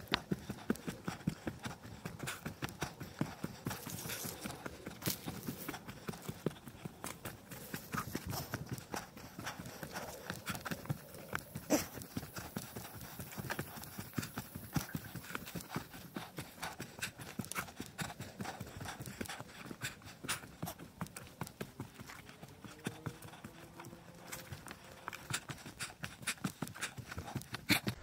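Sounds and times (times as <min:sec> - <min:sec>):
footsteps on leaves and twigs: 0:03.7 - 0:05.8.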